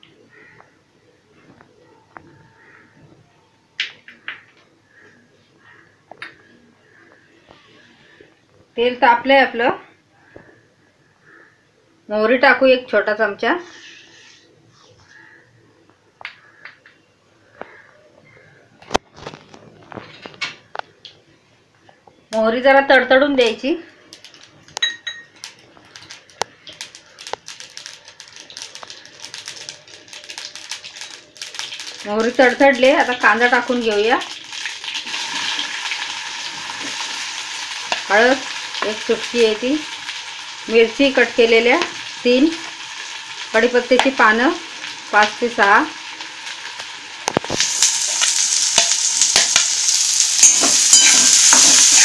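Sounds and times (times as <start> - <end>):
seeds popping in hot oil: 23.3 - 52.0
steel spoon clinking: 24.8 - 25.5, 50.2 - 52.0
spoon scraping pan: 47.4 - 52.0.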